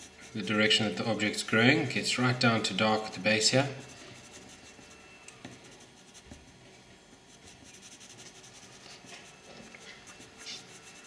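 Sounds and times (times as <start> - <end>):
pencil scratching on paper: 0.0 - 0.9, 3.6 - 6.6, 7.3 - 11.0.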